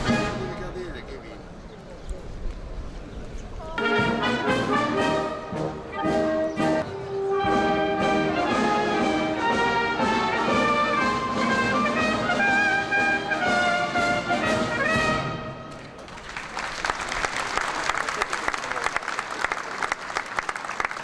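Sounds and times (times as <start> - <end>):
brass band playing: 0.0 - 0.8, 3.8 - 15.7.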